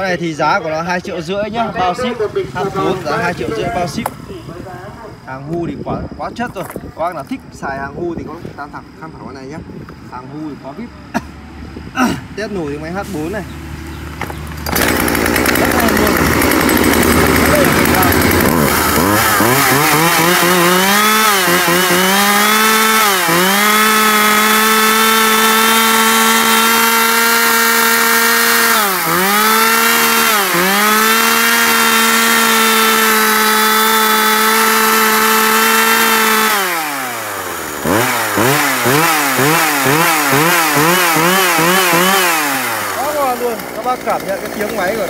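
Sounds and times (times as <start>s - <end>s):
chainsaw engine revving: 0.0s - 4.2s, 12.0s - 45.0s.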